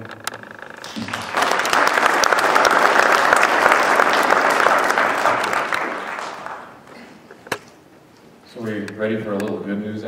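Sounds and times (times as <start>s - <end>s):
audience applauding: 0.8s - 7.2s.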